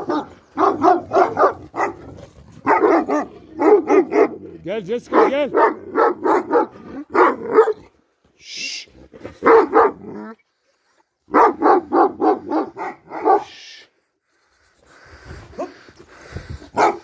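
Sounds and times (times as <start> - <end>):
large dogs barking: 0.0 - 8.1, 9.1 - 10.4, 11.2 - 13.6, 15.5 - 17.0.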